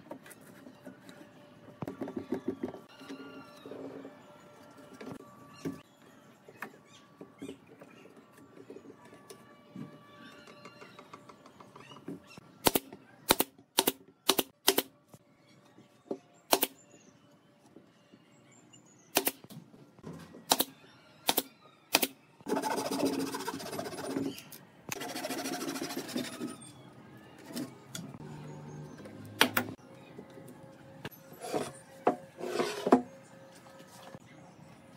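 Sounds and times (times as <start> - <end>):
handsaw cutting wood: 25.0 - 26.5.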